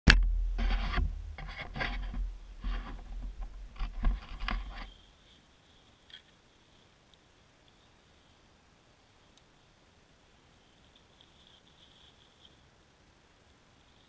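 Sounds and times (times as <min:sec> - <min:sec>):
low rumble: 0:00.1 - 0:04.1
handling noise on microphone: 0:00.1 - 0:05.1
faint high whine: 0:00.1 - 0:14.0.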